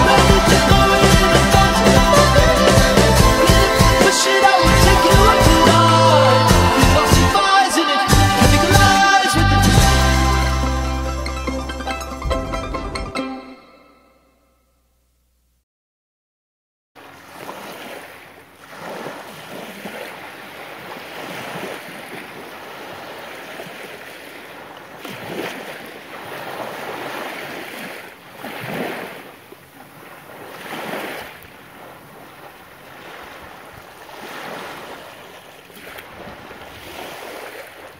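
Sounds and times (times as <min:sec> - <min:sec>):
ocean waves washing: 0:00.0 - 0:13.2, 0:17.0 - 0:37.9.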